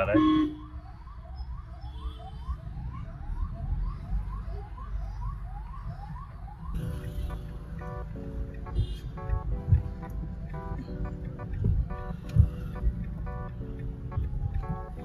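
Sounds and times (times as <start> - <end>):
siren yelping: 0.0 - 7.1, 11.9 - 15.0
low road rumble: 0.0 - 15.0
music: 6.8 - 15.0.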